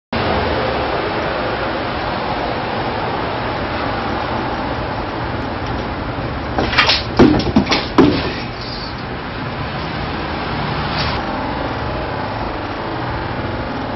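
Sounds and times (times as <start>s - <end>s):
sword swishes and hits: 6.6s - 8.8s.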